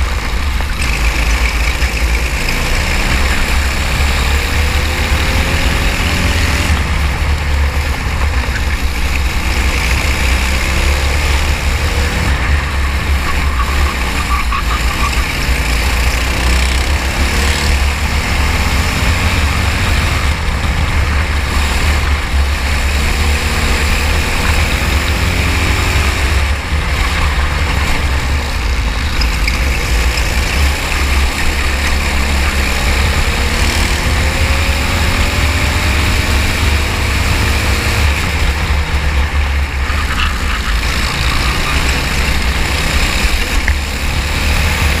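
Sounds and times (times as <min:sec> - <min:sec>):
kart engine revving: 0:00.0 - 0:45.0
heavy low rumble: 0:26.2 - 0:32.7.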